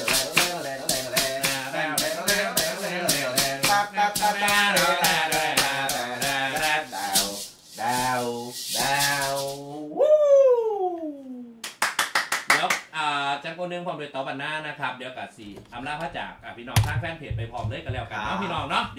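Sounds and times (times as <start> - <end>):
maraca shaken fast: 0.0 - 9.8.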